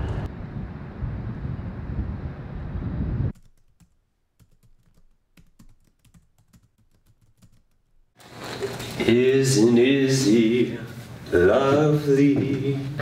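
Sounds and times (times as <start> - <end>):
traffic: 0.0 - 0.5
wind: 0.0 - 3.3
typing on laptop keyboard: 3.3 - 7.9.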